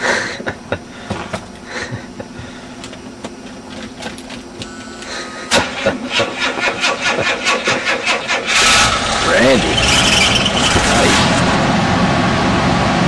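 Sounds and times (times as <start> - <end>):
brief tone: 4.6 - 5.5
car starter cranking engine: 5.5 - 11.7.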